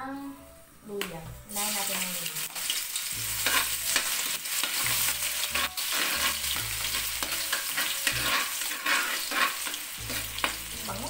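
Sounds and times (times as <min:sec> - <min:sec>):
garlic sizzling in hot oil: 0:01.4 - 0:11.0
metal ladle scraping a wok: 0:03.4 - 0:10.6.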